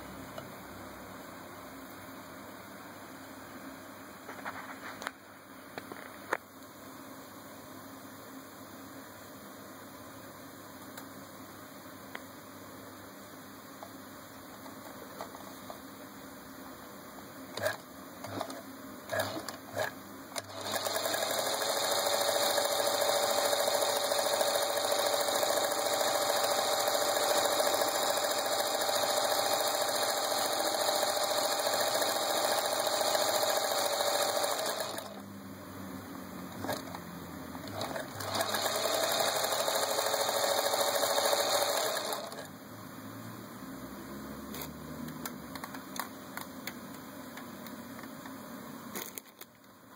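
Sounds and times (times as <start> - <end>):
sewing machine stitching: 17.5 - 35.2, 36.6 - 37.0, 37.6 - 42.5.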